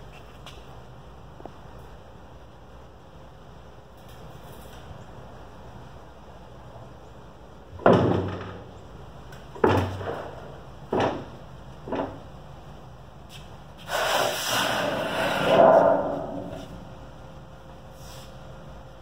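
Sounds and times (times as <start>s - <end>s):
metal sheet scraping: 13.9s - 16.8s.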